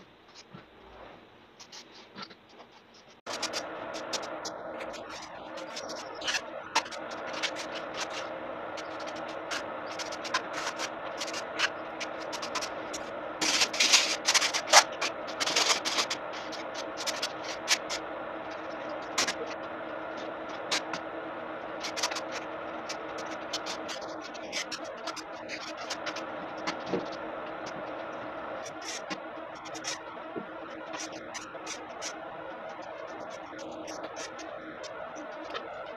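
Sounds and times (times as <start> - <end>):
steady background drone: 0.0 - 35.9
scraping and rubbing plaster: 0.3 - 18.0.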